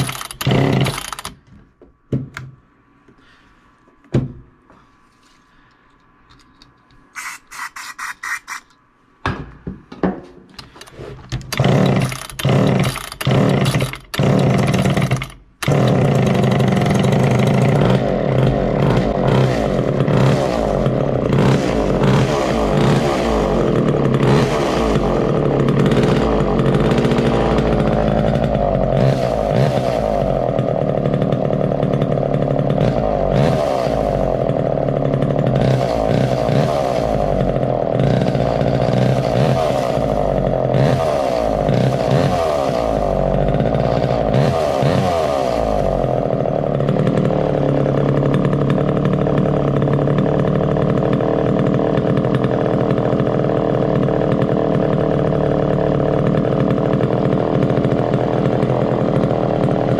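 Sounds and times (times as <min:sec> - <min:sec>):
chainsaw engine starting and running: 0:00.0 - 0:01.5, 0:07.1 - 0:08.7, 0:10.6 - 0:59.9.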